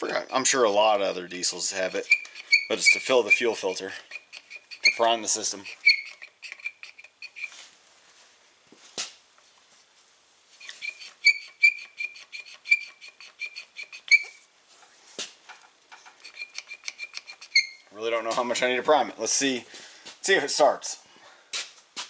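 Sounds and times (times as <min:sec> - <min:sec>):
hand pump squeaking: 0:01.3 - 0:07.6, 0:10.6 - 0:14.4, 0:16.0 - 0:17.9.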